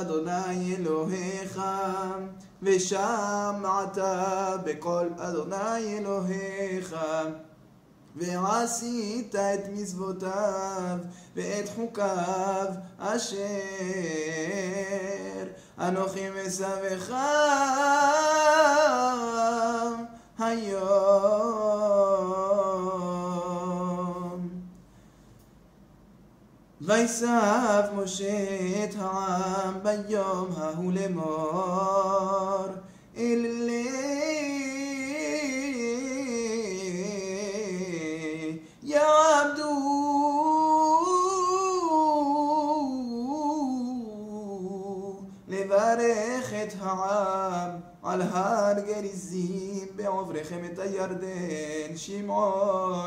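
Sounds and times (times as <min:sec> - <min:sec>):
man chanting: 0:00.0 - 0:07.5, 0:08.2 - 0:24.7, 0:26.8 - 0:53.0
short breath: 0:11.0 - 0:11.4, 0:15.6 - 0:15.8, 0:20.1 - 0:20.4, 0:24.8 - 0:25.6, 0:32.8 - 0:33.2, 0:38.6 - 0:38.8.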